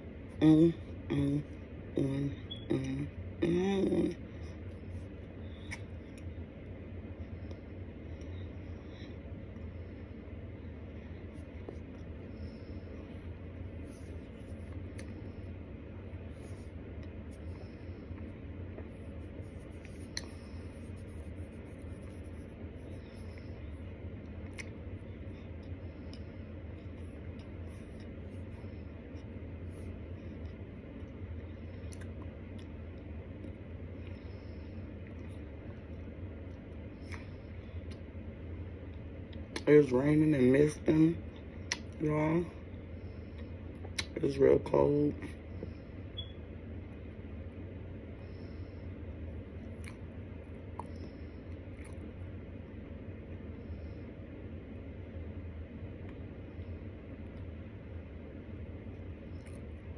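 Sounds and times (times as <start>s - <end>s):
steady low hum: 0.0s - 59.9s
chewing with crunches: 49.6s - 52.2s.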